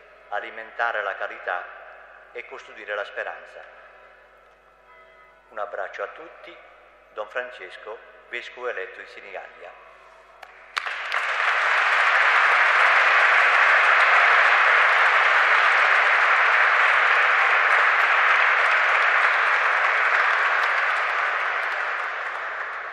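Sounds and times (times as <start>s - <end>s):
congregation applauding: 10.5s - 22.9s.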